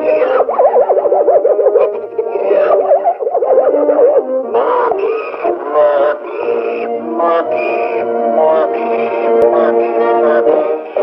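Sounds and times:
warbling cartoon tone: 0:00.0 - 0:06.0
falling whistle: 0:00.2 - 0:04.4.

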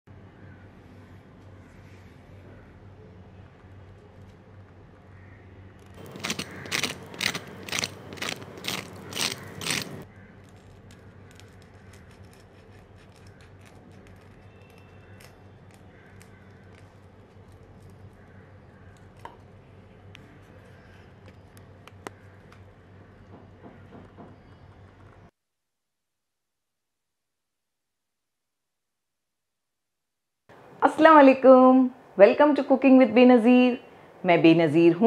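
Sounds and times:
faint small crackles: 0:05.8 - 0:22.7
knife sawing through crunchy crust: 0:06.0 - 0:18.2.

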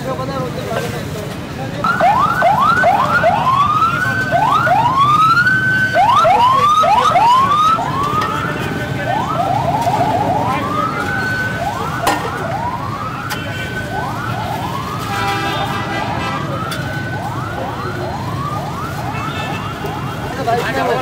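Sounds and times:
street noise hum: 0:00.0 - 0:21.0
electronic siren wailing: 0:01.8 - 0:15.2.

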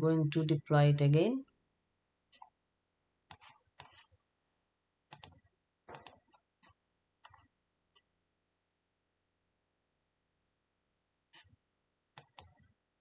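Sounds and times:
faint computer mouse clicks: 0:05.1 - 0:07.4, 0:12.2 - 0:12.7.

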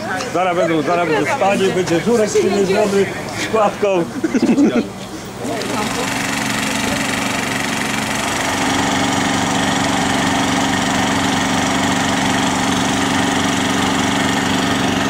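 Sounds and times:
engine running steadily: 0:03.1 - 0:15.0.

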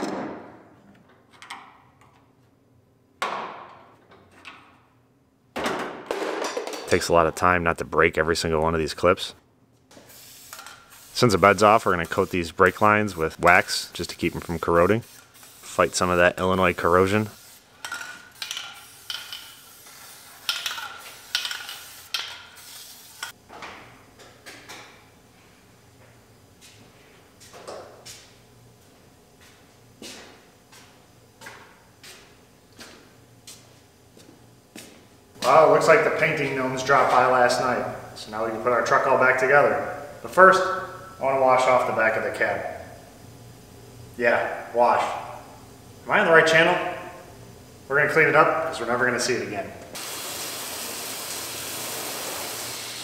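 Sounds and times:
aerosol can spraying: 0:10.0 - 0:23.4, 0:50.0 - 0:53.0.

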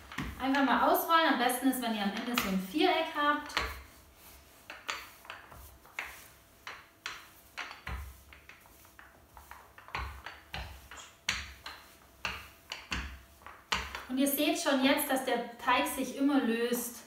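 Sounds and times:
rolling pin on dough: 0:00.0 - 0:14.7
dull thumps: 0:04.7 - 0:14.1.

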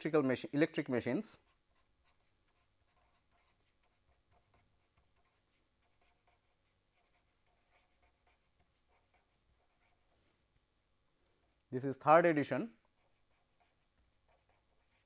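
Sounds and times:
marker scratching on paper: 0:01.4 - 0:10.2, 0:12.8 - 0:15.0.

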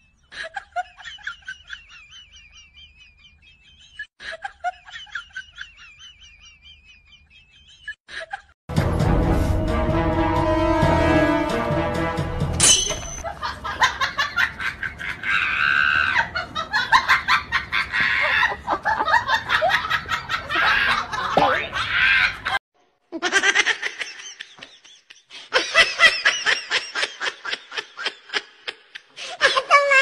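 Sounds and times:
people laughing: 0:00.3 - 0:08.6, 0:13.2 - 0:22.6, 0:23.2 - 0:30.0
people talking: 0:20.5 - 0:21.8.

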